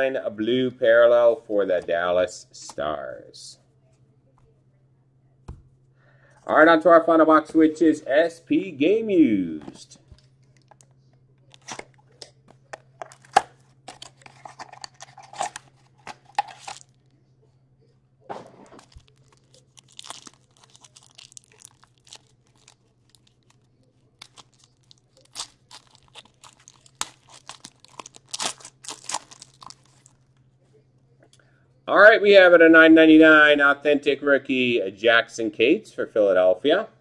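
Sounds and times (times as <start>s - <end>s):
plastic wrapper tearing and crinkling: 11.4s - 17.1s, 18.6s - 30.2s
card box being opened: 11.5s - 12.0s, 12.7s - 16.9s.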